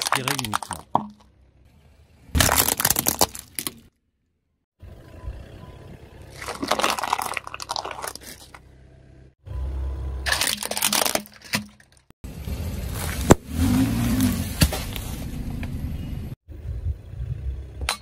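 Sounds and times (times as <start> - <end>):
plastic clothespins crunching: 0.0 - 0.9, 6.4 - 8.6, 10.3 - 12.0
plastic toy crunching and breaking: 0.0 - 1.2, 2.4 - 3.9, 6.3 - 8.6, 10.3 - 12.0.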